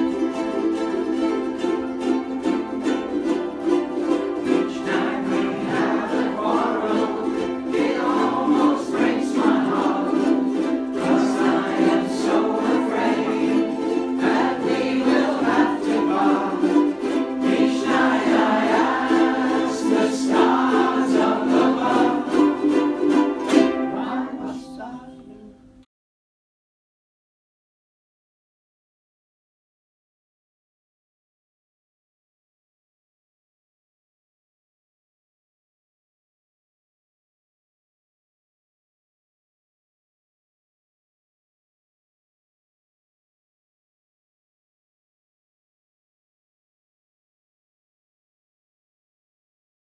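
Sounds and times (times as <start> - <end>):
ukuleles strumming chords: 0.0 - 25.8
group of voices singing: 2.4 - 25.4.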